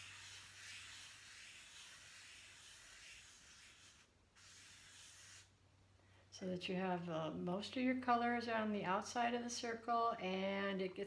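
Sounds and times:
fingertip rubbing pastel on paper: 0.0s - 5.5s.

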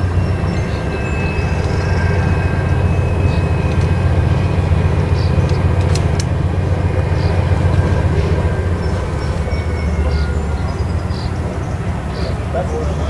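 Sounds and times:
distant freight train rumble: 0.0s - 13.0s
sharp clicks: 5.4s - 6.4s.

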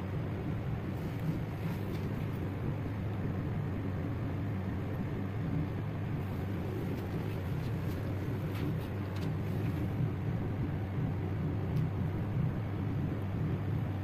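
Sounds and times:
low background rumble: 0.0s - 14.0s
faint scratchy rustles: 1.0s - 2.5s, 6.2s - 10.0s.

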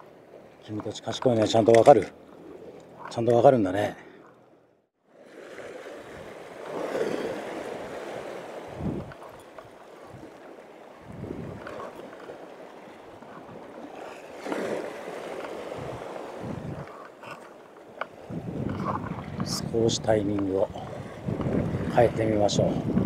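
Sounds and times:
waves washing against rocks: 5.2s - 17.4s
wind buffeting microphone: 6.0s - 17.0s, 18.1s - 23.0s.

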